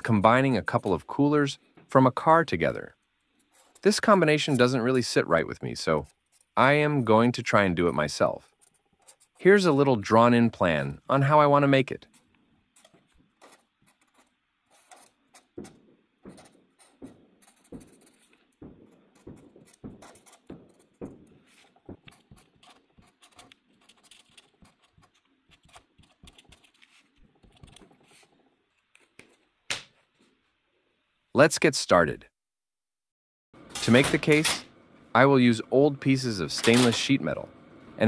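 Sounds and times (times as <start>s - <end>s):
marker scratching on paper: 3.4s - 4.8s, 7.8s - 9.6s, 12.0s - 28.4s.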